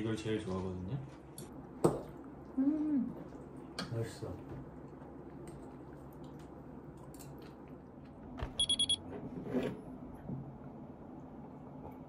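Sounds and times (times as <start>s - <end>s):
quick electronic beeps: 8.4s - 9.0s.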